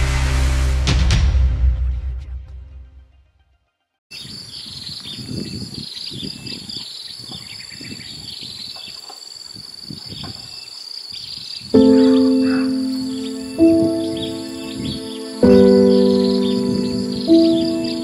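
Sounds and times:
intro music: 0.0s - 3.1s, 11.8s - 18.0s
high-pitched insect drone: 11.8s - 18.0s.

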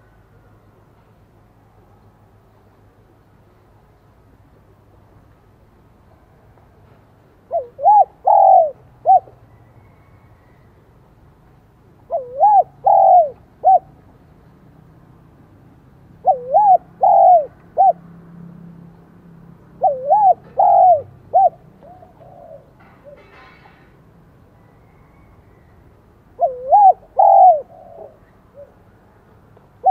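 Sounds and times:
dove cooing: 7.5s - 9.4s, 12.0s - 14.0s, 16.2s - 18.0s, 19.7s - 23.5s, 26.3s - 28.8s.

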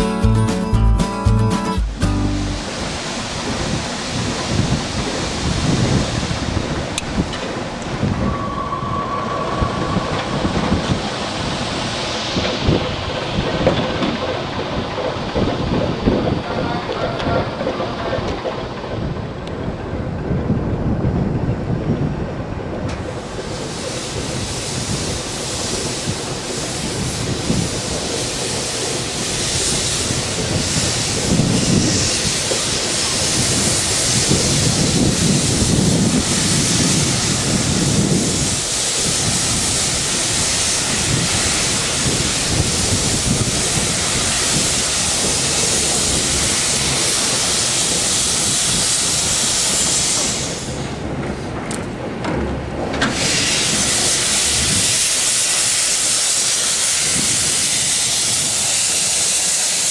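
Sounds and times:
steam hissing: 1.6s - 18.0s, 23.0s - 51.5s, 53.0s - 59.9s
locomotive low rumble: 49.7s - 55.0s.

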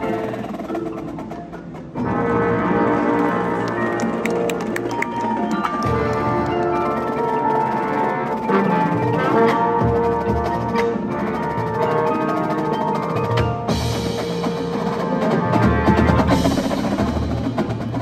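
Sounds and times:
brass held chords: 2.0s - 12.8s.

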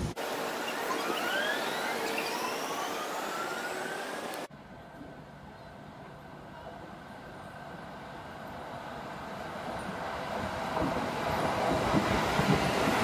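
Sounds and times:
train wheels rumbling on rails: 5.8s - 13.0s.

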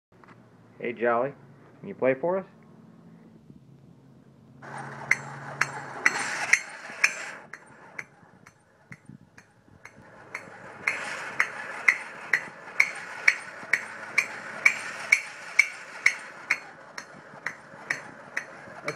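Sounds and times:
mechanical background noise: 0.2s - 18.9s
toy cymbals clinking: 4.8s - 9.0s, 9.9s - 18.9s.

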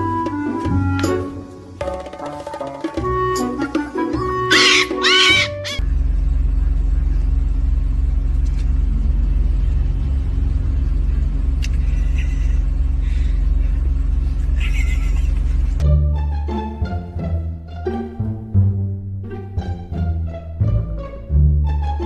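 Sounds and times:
low engine-like rumble and hum: 4.6s - 22.0s.

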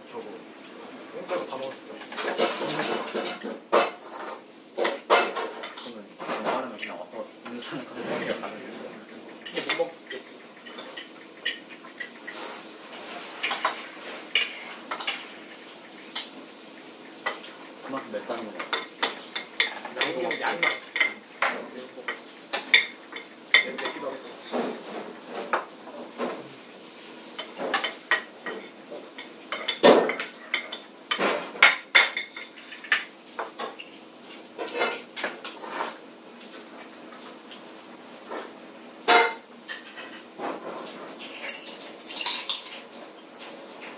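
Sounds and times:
cutlery clinking on plates: 2.1s - 8.5s, 13.2s - 15.3s, 27.4s - 34.0s, 34.6s - 36.0s, 39.1s - 42.9s.

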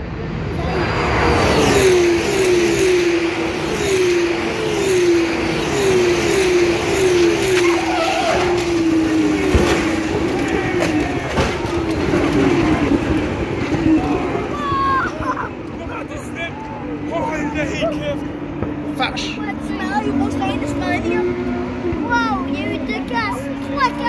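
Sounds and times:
rush of air and tyre noise: 0.0s - 22.8s
racing car engines passing: 0.0s - 24.0s.

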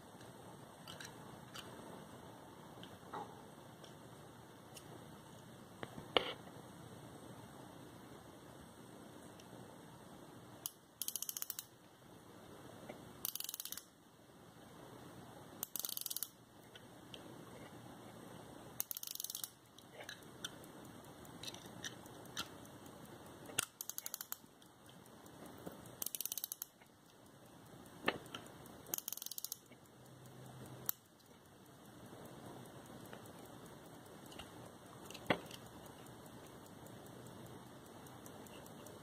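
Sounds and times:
pocket watch winding ratchet clicks: 10.6s - 11.8s, 13.2s - 14.0s, 15.6s - 16.9s, 18.7s - 39.0s.

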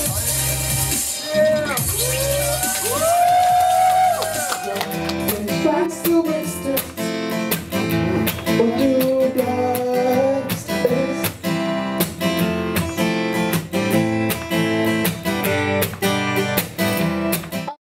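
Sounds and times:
person singing: 0.0s - 14.3s
acoustic guitar strumming: 4.9s - 17.8s.

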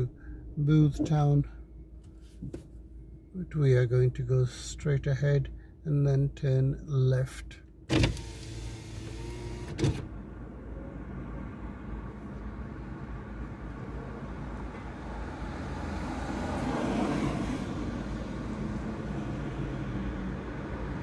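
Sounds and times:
traffic rumble inside car: 0.0s - 21.0s
vehicle passing: 14.9s - 21.0s.

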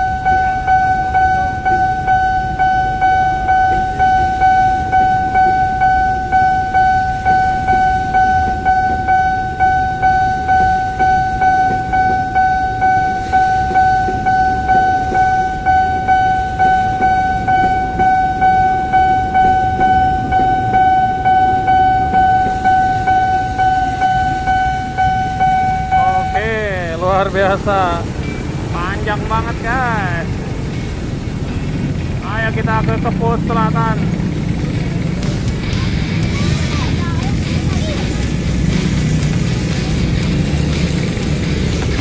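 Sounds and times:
level crossing bell dinging: 0.0s - 32.8s
freight train rumbling: 0.0s - 42.0s.

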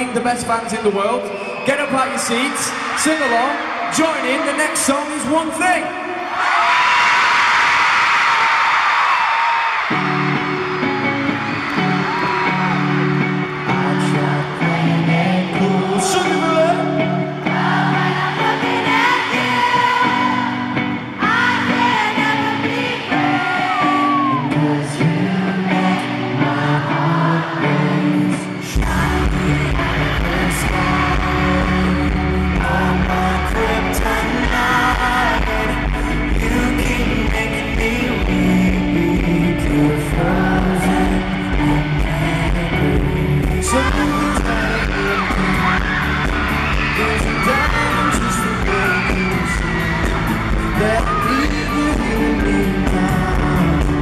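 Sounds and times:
live pop band: 0.0s - 54.0s
man singing lead vocals: 12.0s - 54.0s
heavy bass: 28.8s - 54.0s.

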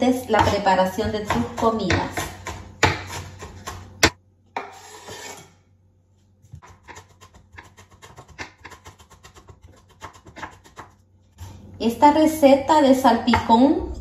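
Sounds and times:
knife chopping on wooden board: 0.4s - 4.8s, 6.6s - 11.0s
blade scraping across board: 4.6s - 5.6s.

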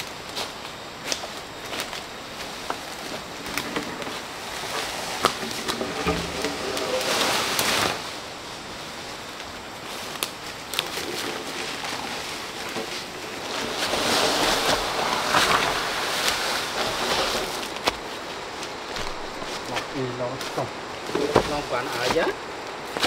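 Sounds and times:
footsteps through dry leaves: 6.2s - 22.3s
twigs snapping: 10.0s - 11.8s.

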